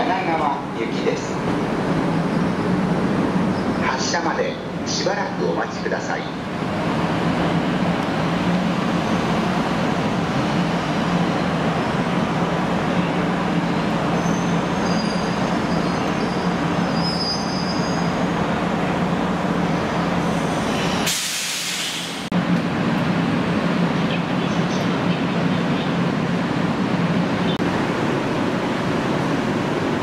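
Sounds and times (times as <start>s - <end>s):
short burst of hiss: 21.1s - 22.2s
electric train humming: 22.0s - 30.0s.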